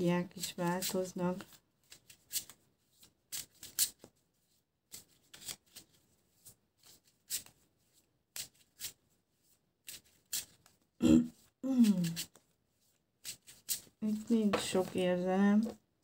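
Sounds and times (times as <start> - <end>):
cards being shuffled: 0.2 - 15.8.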